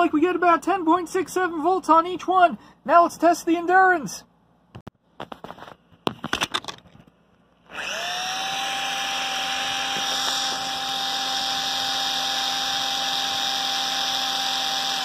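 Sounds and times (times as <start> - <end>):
clicks and knocks: 4.8 - 7.2
cordless drill motor whining: 7.7 - 15.0.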